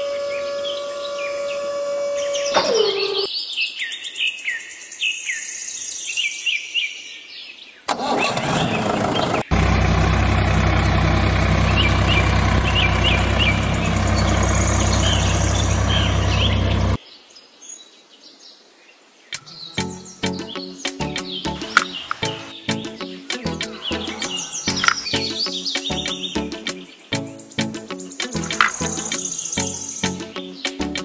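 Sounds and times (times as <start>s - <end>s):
birds chirping: 0.0s - 4.7s, 7.6s - 17.3s, 19.3s - 31.0s
tractor engine running: 7.9s - 17.0s, 21.6s - 22.5s, 23.6s - 25.5s, 28.4s - 29.4s.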